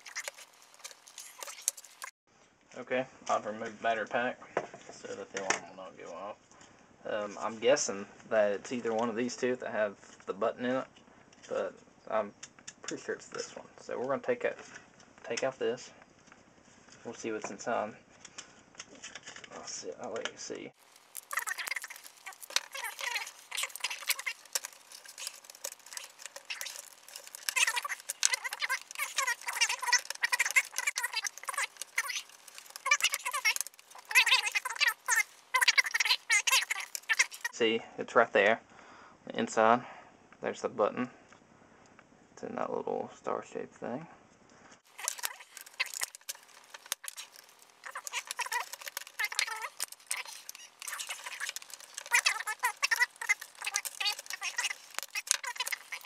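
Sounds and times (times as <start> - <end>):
plastic housing clicking and squeaking: 0.0 - 2.1, 21.2 - 37.6, 44.9 - 56.0.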